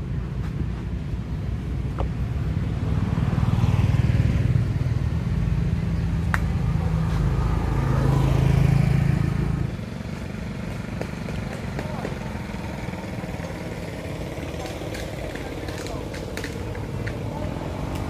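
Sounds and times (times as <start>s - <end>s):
vehicle engine rumble: 0.0s - 18.0s.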